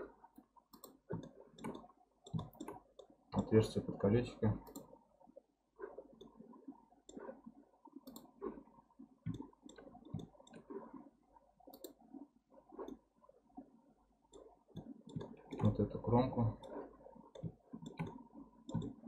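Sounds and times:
computer mouse clicks: 0:00.7 - 0:03.5, 0:04.6 - 0:05.0, 0:08.0 - 0:08.6, 0:09.2 - 0:10.8, 0:11.7 - 0:12.0, 0:14.3 - 0:15.8, 0:16.6 - 0:19.0.

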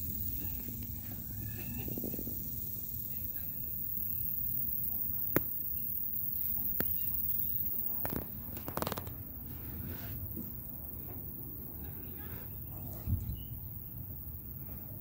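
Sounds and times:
wind rumble on microphone: 0:00.0 - 0:03.8, 0:12.7 - 0:15.0
clatter of small clicks: 0:08.0 - 0:09.2.

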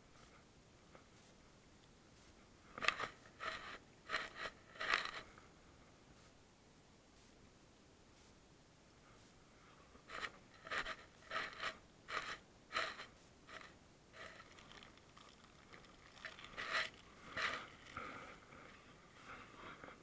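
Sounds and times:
paper wrapper crinkling: 0:14.2 - 0:18.0.

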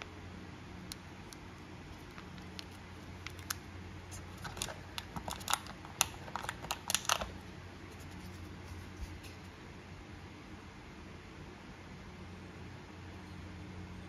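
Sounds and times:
plastic bag crinkling: 0:01.9 - 0:07.4
items clicking on plastic tray: 0:04.4 - 0:07.4.

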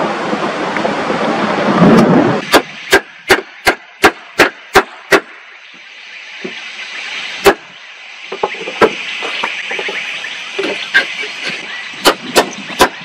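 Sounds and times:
hammer striking wood: 0:02.5 - 0:05.3, 0:12.0 - 0:13.0.

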